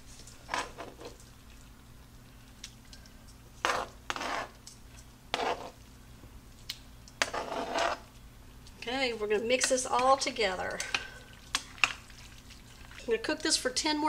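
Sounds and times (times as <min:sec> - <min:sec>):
faint steady hum: 0:00.0 - 0:14.0
tongs scraping cutting board: 0:03.6 - 0:04.7, 0:05.3 - 0:05.8, 0:07.2 - 0:08.1.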